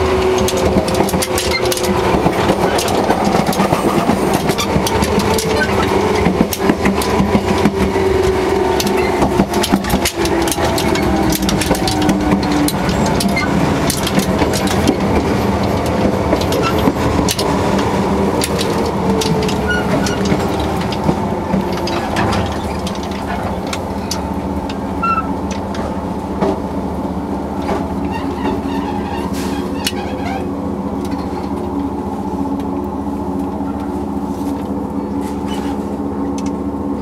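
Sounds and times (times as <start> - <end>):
train running noise: 0.0 - 37.0.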